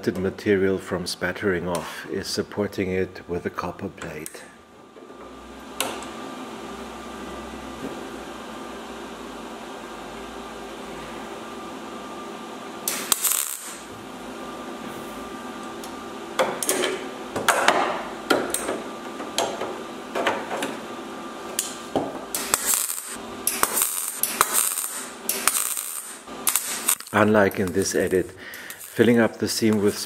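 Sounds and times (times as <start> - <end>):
spot welder crackling: 12.8 - 14.0, 21.5 - 30.0.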